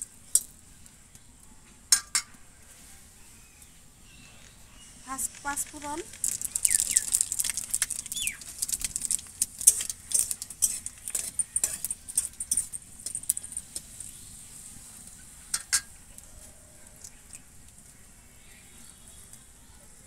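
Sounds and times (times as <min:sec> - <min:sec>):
seeds crackling in hot oil: 0:00.0 - 0:20.0
bird chirping: 0:03.2 - 0:09.2
metal spatula scraping pan: 0:09.6 - 0:14.0.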